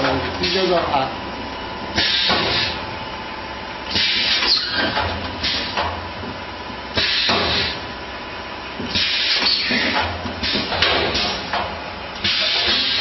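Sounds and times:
air hiss of machine press: 2.0s - 2.8s, 3.9s - 4.6s, 5.4s - 5.8s, 7.0s - 7.8s, 8.9s - 11.5s, 12.2s - 13.0s.

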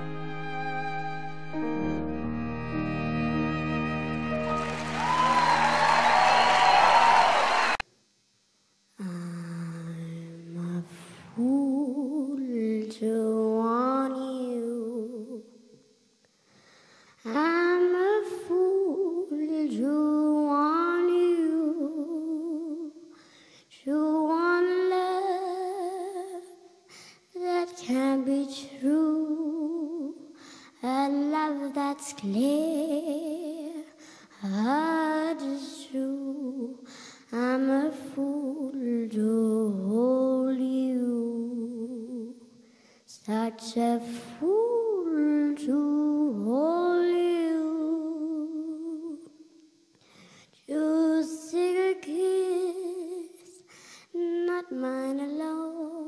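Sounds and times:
girl singing unaccompanied: 9.0s - 15.8s, 17.2s - 56.0s.

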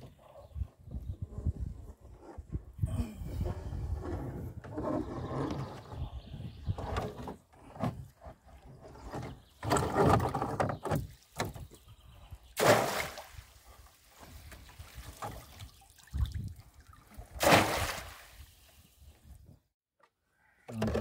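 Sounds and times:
water splashing off fish trap: 17.4s - 18.4s.

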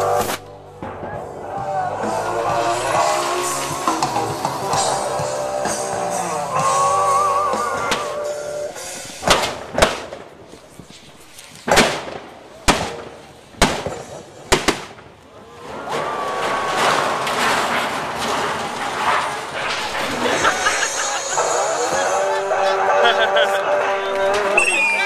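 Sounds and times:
rock music with guitar: 0.0s - 9.2s
pyrotechnic bangs: 0.0s - 23.0s.

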